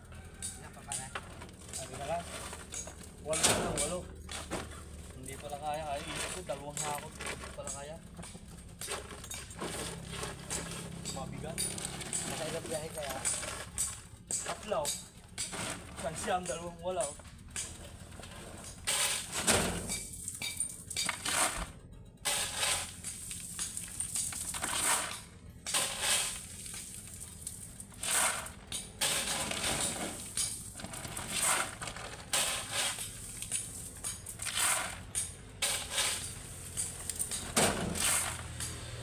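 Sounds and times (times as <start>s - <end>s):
shovel digging into gravel: 5.2s - 8.0s, 8.8s - 17.1s, 18.7s - 20.2s, 21.0s - 38.7s.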